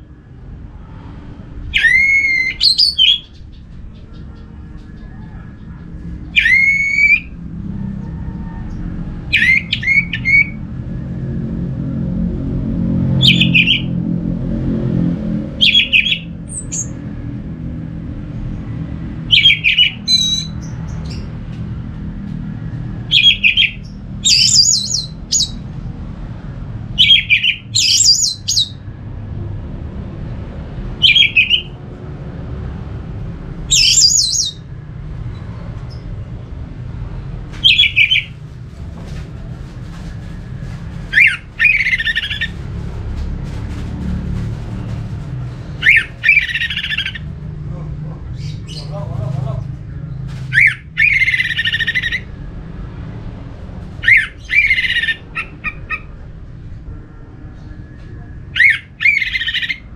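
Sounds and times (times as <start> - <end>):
low background rumble: 0.0 - 59.9
thrush calling: 1.6 - 10.6, 13.2 - 14.0, 15.6 - 17.0, 23.1 - 25.6, 27.0 - 28.8, 31.0 - 31.8, 33.7 - 34.7, 37.6 - 38.4, 40.8 - 43.0, 45.6 - 47.5, 50.5 - 52.4, 54.0 - 56.3, 58.5 - 59.9.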